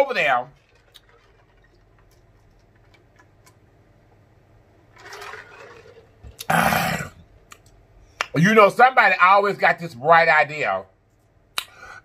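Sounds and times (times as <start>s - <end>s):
person gulping: 6.3s - 7.3s.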